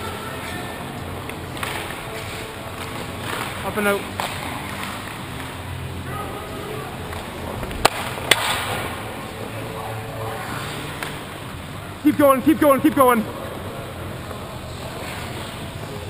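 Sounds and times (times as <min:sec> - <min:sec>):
arena hubbub: 0:00.0 - 0:16.0
stick or puck clacks: 0:01.2 - 0:05.6, 0:07.1 - 0:08.8
faint distant shouts: 0:06.0 - 0:07.1.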